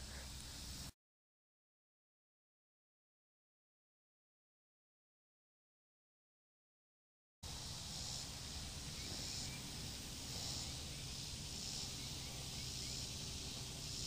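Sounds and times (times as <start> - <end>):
insects buzzing in pulses: 0.0 - 0.9, 7.4 - 14.0
faint bird chirps: 7.9 - 14.0.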